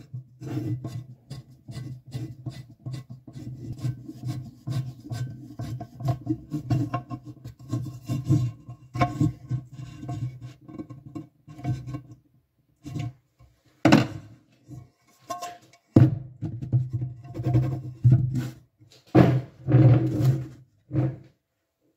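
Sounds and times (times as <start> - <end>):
metal tool scraping a pan: 0.0 - 12.2, 12.8 - 16.0, 16.6 - 18.6.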